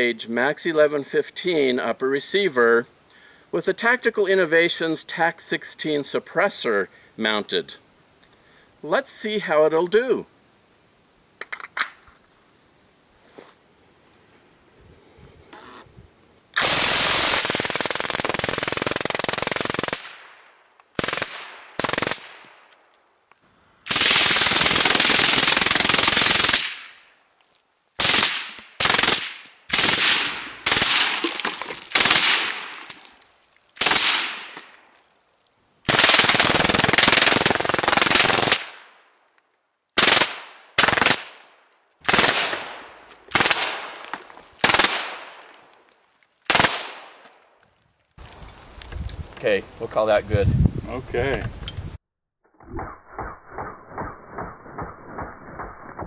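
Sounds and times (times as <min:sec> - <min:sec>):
suppressed rifle firing bursts: 0:16.6 - 0:20.3, 0:21.0 - 0:22.5, 0:35.9 - 0:38.8, 0:40.0 - 0:41.4.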